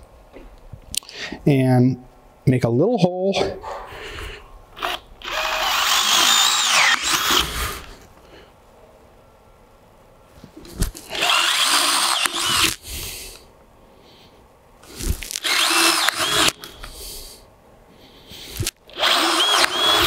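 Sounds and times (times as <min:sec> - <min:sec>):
power drill boring through vinyl: 0:04.8 - 0:07.9, 0:11.1 - 0:12.8, 0:15.2 - 0:16.9, 0:18.6 - 0:20.0.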